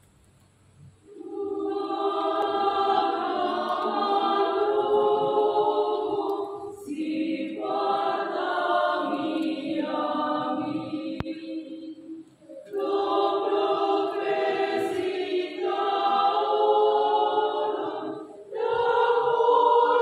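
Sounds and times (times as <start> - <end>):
choir singing in harmony: 1.1 - 20.0.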